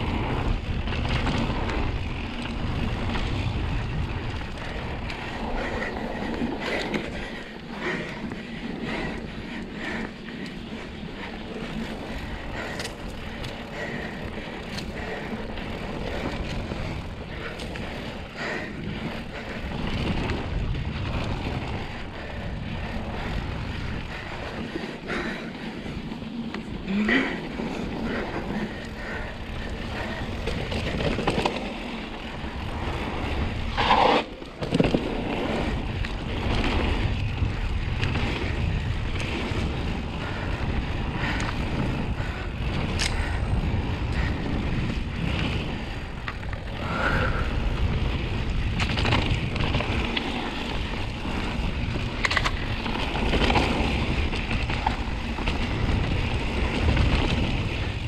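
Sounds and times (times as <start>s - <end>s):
wind buffeting microphone: 0.0s - 58.0s
tyre rumble: 26.3s - 40.6s
bike knocks and rattles: 30.3s - 32.0s, 34.5s - 35.7s.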